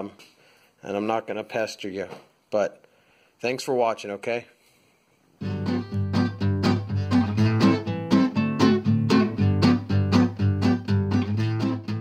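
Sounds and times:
acoustic guitar strumming: 5.4 - 12.0.

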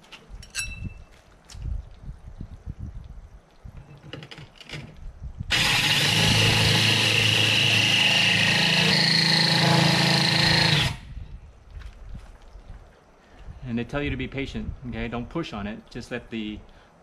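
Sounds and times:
drill hole saw grinding glass: 5.5 - 11.1.

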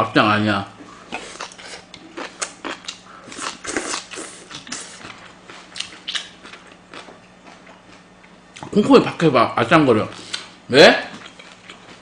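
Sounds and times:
person chewing food: 1.0 - 8.7, 11.1 - 12.0.

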